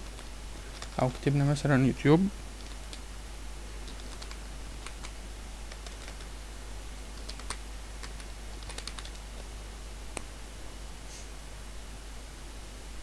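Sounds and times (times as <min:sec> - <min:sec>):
keyboard typing: 0:00.0 - 0:01.4, 0:02.6 - 0:03.0, 0:03.8 - 0:06.3, 0:07.2 - 0:09.3
low background hum: 0:00.0 - 0:13.0.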